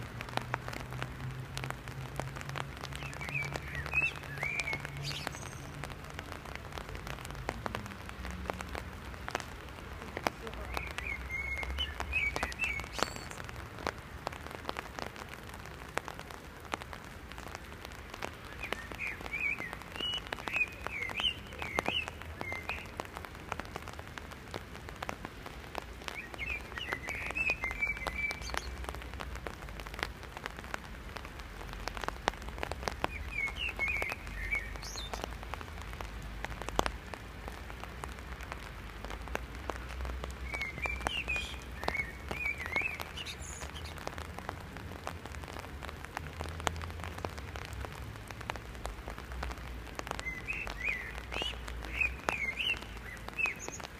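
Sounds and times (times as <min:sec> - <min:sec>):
raindrops ticking on umbrella: 0:00.0 - 0:53.9
steady rain: 0:00.0 - 0:53.9.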